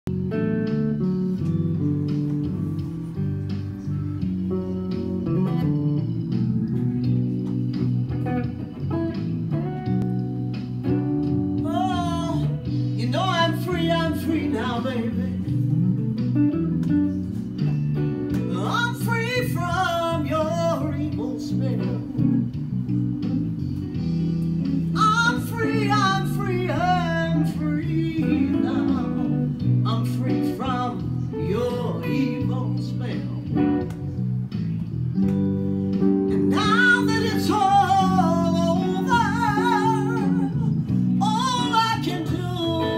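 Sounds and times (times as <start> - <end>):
blues guitar accompaniment: 0.1 - 42.9
woman singing: 11.6 - 15.5, 18.5 - 22.2, 25.0 - 33.6, 36.4 - 42.9.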